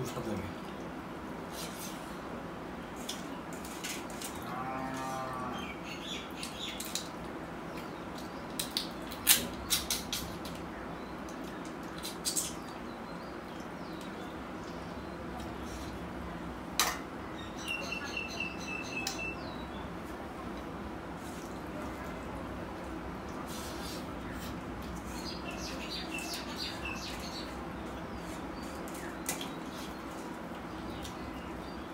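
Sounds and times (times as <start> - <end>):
bird chirping: 17.3 - 19.9, 25.1 - 27.6.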